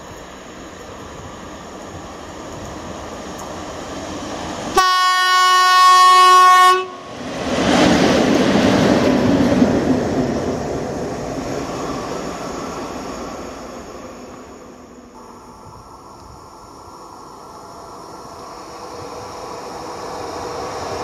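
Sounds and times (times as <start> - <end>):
train clickety-clack: 0.0 - 4.9, 6.3 - 13.0
wheel and rail noise: 0.0 - 4.9, 5.7 - 21.0
locomotive horn blast: 4.8 - 7.0.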